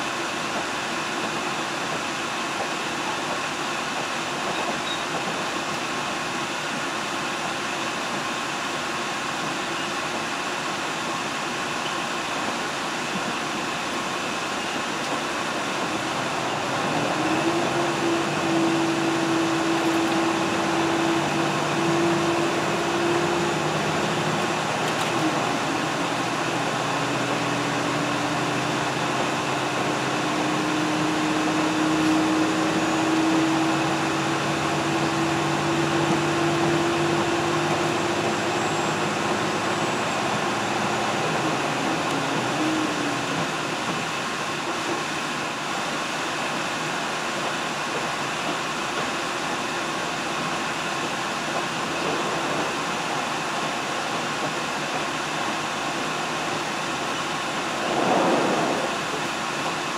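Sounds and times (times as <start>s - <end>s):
train wheels rumbling: 12.0s - 46.6s, 47.3s - 59.9s.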